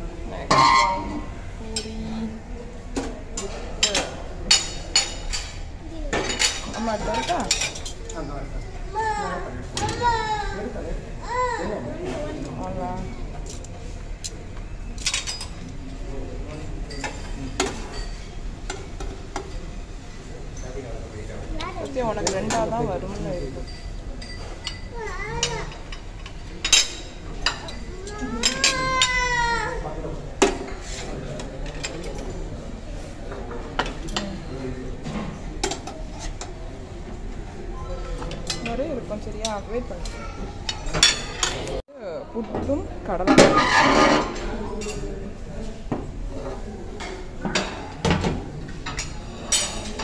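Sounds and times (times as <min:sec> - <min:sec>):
murmur of voices: 0:00.0 - 0:50.0
dishes and utensils clinking: 0:00.4 - 0:02.0, 0:02.9 - 0:08.5, 0:13.3 - 0:20.9, 0:21.6 - 0:32.4, 0:33.3 - 0:36.7, 0:37.8 - 0:41.8, 0:42.5 - 0:45.1, 0:46.0 - 0:50.0.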